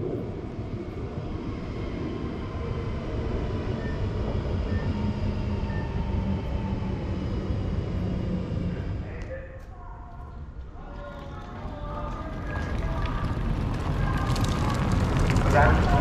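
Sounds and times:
faint high whine: 0.0s - 10.5s
passenger train rumbling past: 10.8s - 16.0s.

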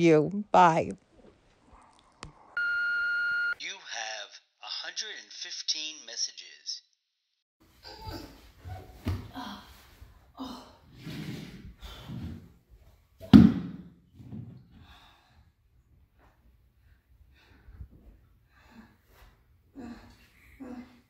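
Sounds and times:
woman breathing heavily and gasping: 14.7s - 15.7s, 16.8s - 21.0s.

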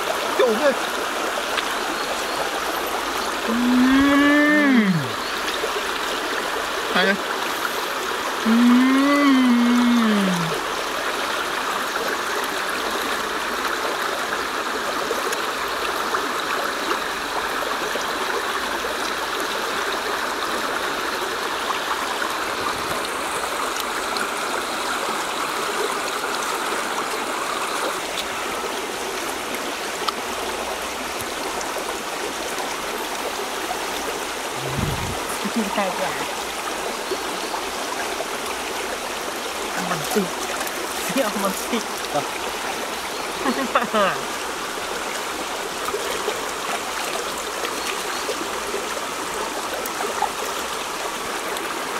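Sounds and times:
running water rushing: 0.0s - 51.9s.

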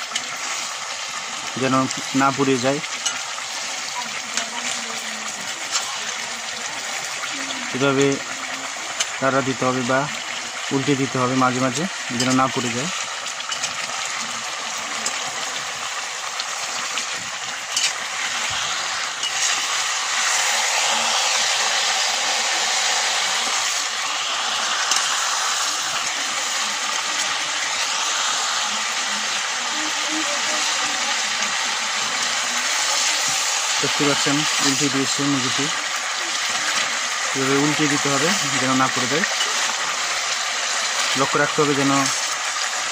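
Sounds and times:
chicken sizzling in hot oil: 0.0s - 42.9s
metal spatula clicking and scraping: 13.5s - 13.9s, 17.7s - 18.0s, 19.2s - 19.8s, 24.9s - 25.1s.

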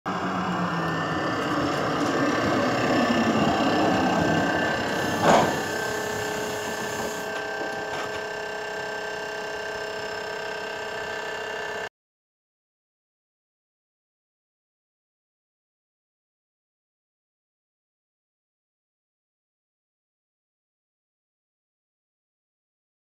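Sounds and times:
small electric motor whirring: 0.1s - 11.9s.

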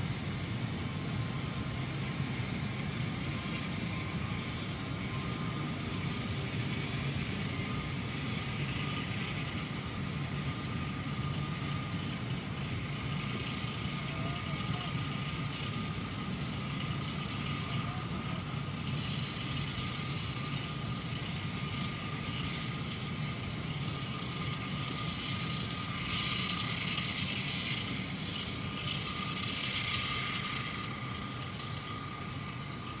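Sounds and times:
wheels rushing on rails: 0.0s - 33.0s
freight train rumbling past: 22.4s - 33.0s.

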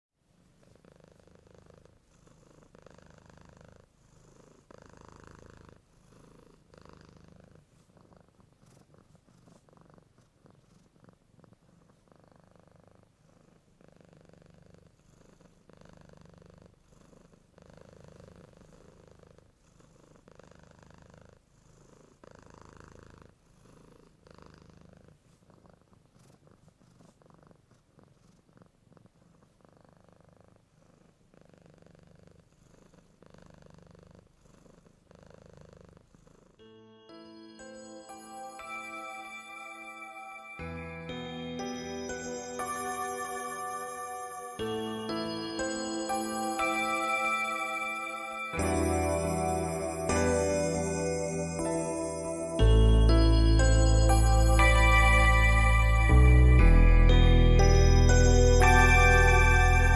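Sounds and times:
cat purring: 0.3s - 36.7s.

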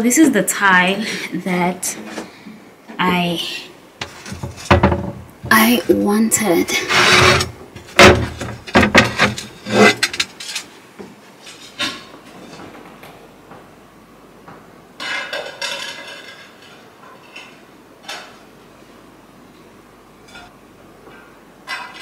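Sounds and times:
tiles knocking and clinking: 4.0s - 5.7s, 7.8s - 10.6s
tile scraping and clattering: 4.0s - 6.0s, 6.8s - 10.7s.

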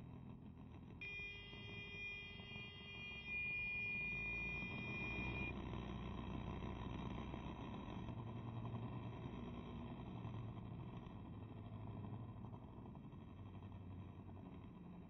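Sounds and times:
high electronic tone: 1.0s - 5.6s.

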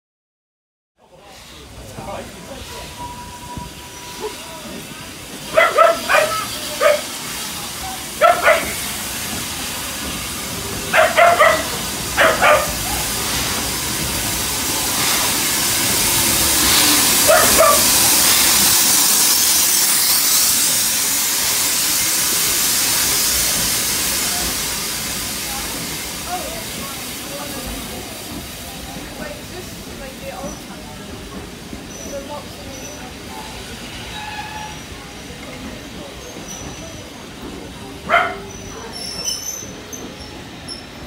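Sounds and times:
steam locomotive hissing: 1.0s - 41.0s
train passing: 1.0s - 41.0s
dog barking: 5.5s - 7.1s, 8.2s - 8.8s, 10.9s - 13.0s, 17.3s - 18.0s, 38.1s - 38.9s.

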